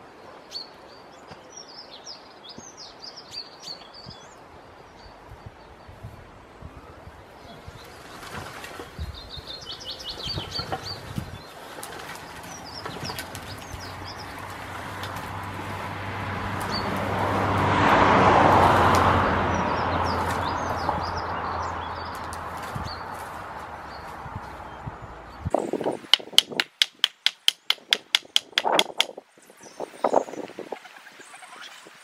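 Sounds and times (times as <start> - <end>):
small birds chirping: 6.8 - 15.8, 16.6 - 17.2, 19.5 - 32.0.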